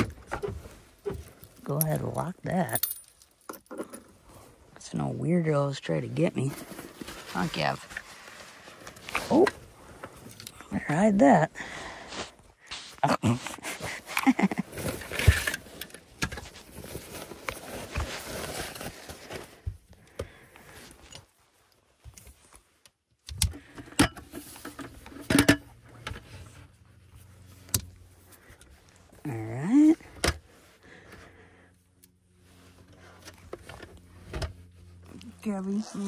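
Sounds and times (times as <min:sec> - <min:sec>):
fabric and bag rustling: 0:06.0 - 0:10.4, 0:11.0 - 0:19.7, 0:32.4 - 0:36.0.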